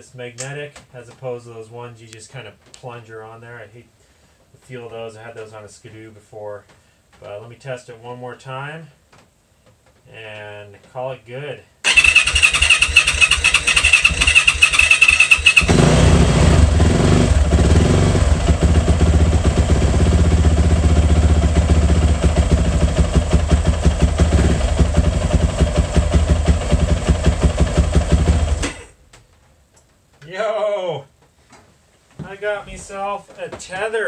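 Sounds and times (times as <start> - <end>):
electric starter whirring: 11.9 - 16.4
motorcycle engine running: 11.9 - 28.9.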